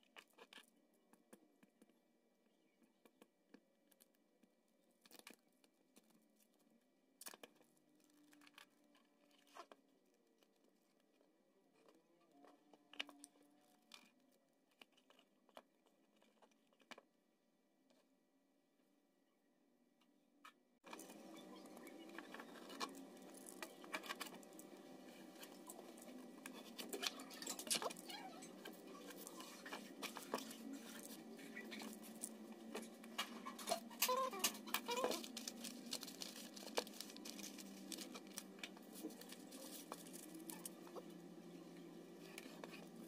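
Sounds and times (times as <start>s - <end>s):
metallic foil crinkling: 21.0s - 41.2s.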